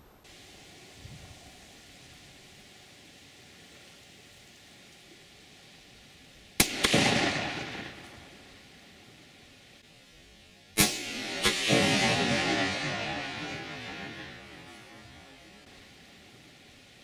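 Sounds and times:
faint outdoor background: 0.0s - 17.0s
rifle shot with echo: 6.6s - 9.7s, 10.8s - 16.8s.

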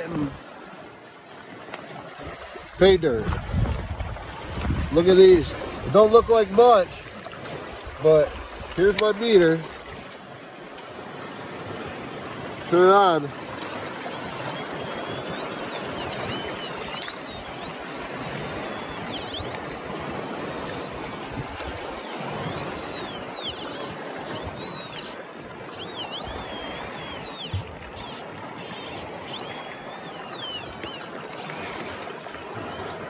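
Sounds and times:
rushing water: 0.0s - 33.0s
metal detector gliding tone: 11.4s - 33.0s.

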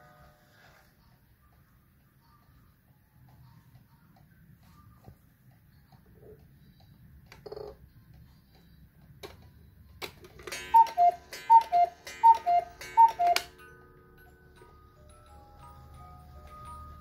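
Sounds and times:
clock works clicking: 10.2s - 13.8s
music box tune: 10.5s - 17.0s
two-note cuckoo calls: 10.6s - 13.5s.

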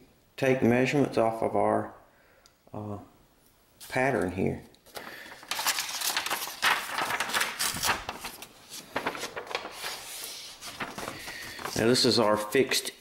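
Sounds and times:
paper rustling and crinkling: 3.8s - 12.9s.

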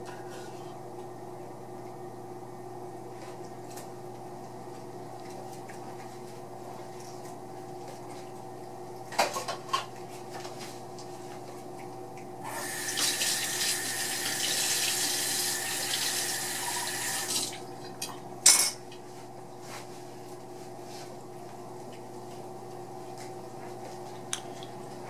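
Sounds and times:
faucet running into steel sink: 12.5s - 17.5s.

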